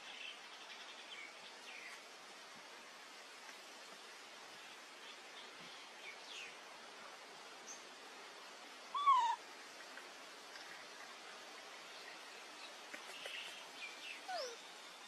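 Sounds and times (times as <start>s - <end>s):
faint steady hiss: 0.0s - 15.0s
wavering animal call: 8.9s - 9.4s.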